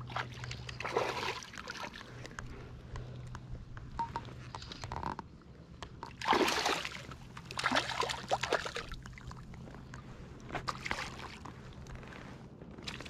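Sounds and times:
fish splashing in water: 0:00.0 - 0:02.1, 0:06.1 - 0:09.4.

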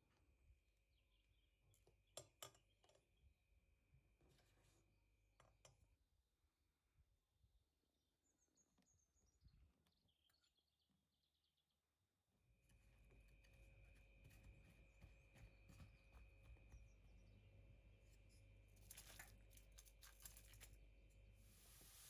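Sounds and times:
faint steady hum: 0:12.5 - 0:22.0
oil sizzling: 0:21.4 - 0:22.0.

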